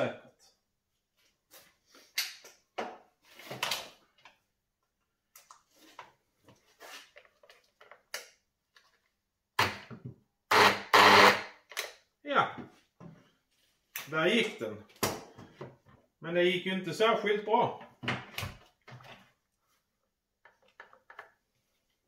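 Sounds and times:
electric motor bursts: 10.5s - 11.5s.

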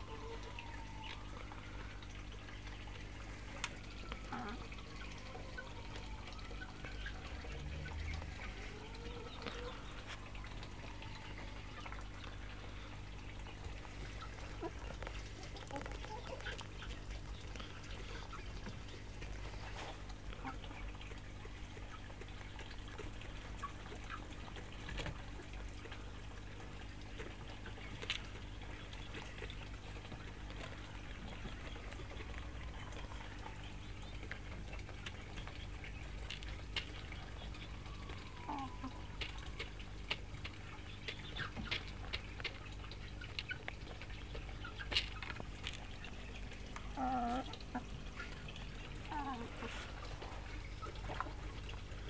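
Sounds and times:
hens clucking: 3.0s - 52.0s
small clicks and rustles: 39.2s - 46.9s.

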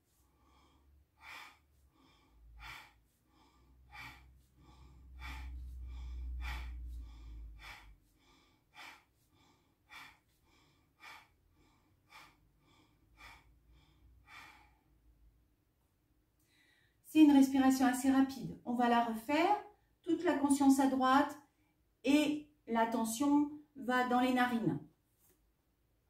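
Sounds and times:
forceful breaths through the nose: 0.0s - 15.0s.

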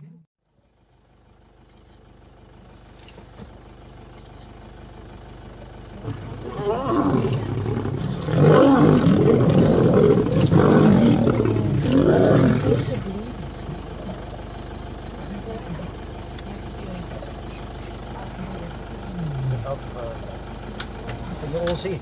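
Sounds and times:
lions fighting and growling: 5.5s - 22.0s.

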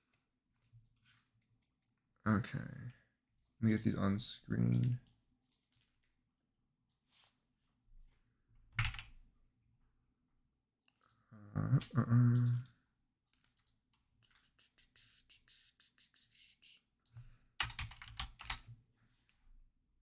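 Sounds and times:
keyboard typing: 8.8s - 9.2s, 17.6s - 18.7s.

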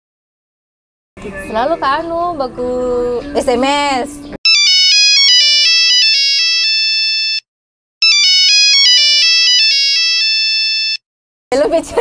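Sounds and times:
electronic phone ringtone: 4.5s - 11.0s.

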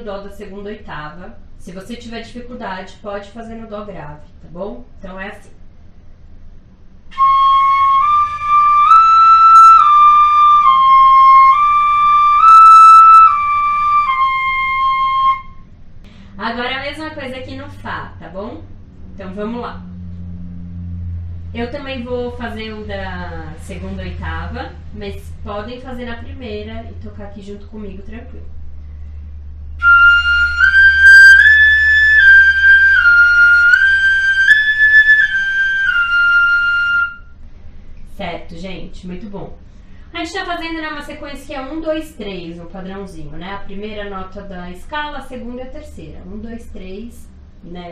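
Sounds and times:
fife playing slow notes: 28.5s - 37.4s.

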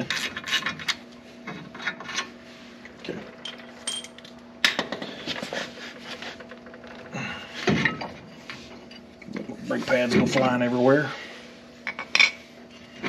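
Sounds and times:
metal tools clinking and knocking: 3.4s - 4.3s.

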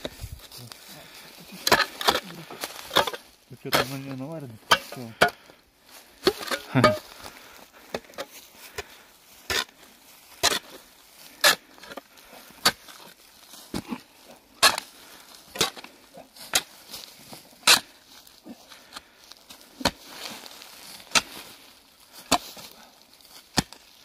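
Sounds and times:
spade chopping into soil: 23.5s - 23.8s.

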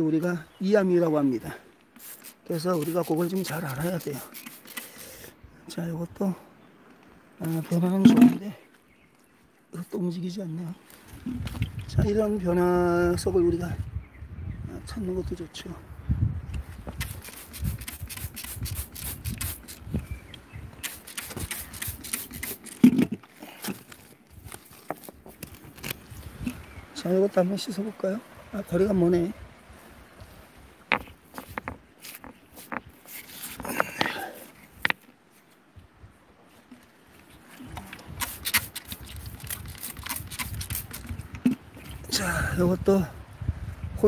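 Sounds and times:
spray bottle squirting water: 2.0s - 5.1s, 17.0s - 19.9s, 20.8s - 23.1s, 38.0s - 41.6s
coarse gravel scraping: 2.0s - 5.2s, 20.8s - 26.7s, 30.3s - 35.1s, 37.8s - 42.0s
stones clacking: 30.8s - 35.1s.

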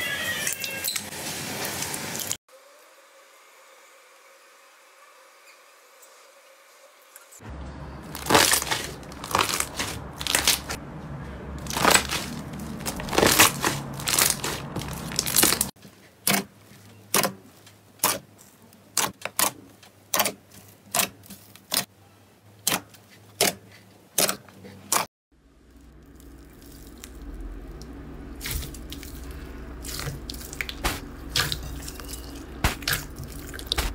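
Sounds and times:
slime crackling squishes: 8.0s - 10.8s, 11.6s - 15.8s, 25.6s - 33.9s.

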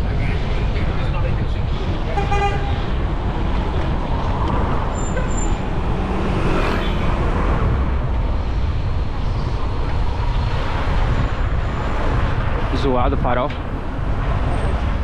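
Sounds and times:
road traffic noise: 0.0s - 15.0s
wind on microphone: 0.0s - 15.0s
vehicle passing: 1.6s - 12.8s.

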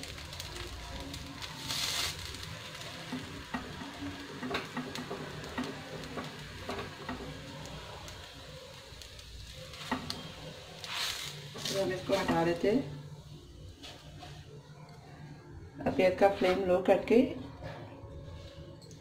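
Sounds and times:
sandwich sizzling in a pan: 0.0s - 13.0s.

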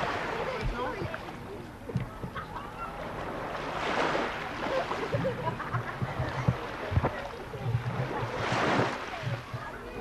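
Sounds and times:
wave washing up shingle: 3.0s - 10.0s.

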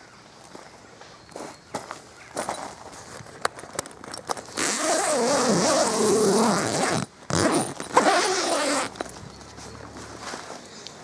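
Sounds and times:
zip being pulled open: 4.5s - 9.0s.

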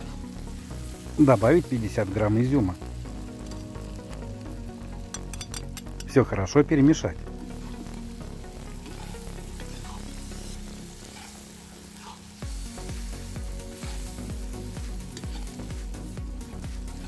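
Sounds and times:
background music with low beat: 0.0s - 17.0s
food sizzling in hot oil: 0.0s - 17.0s
metal skimmer stirring: 5.1s - 5.9s.

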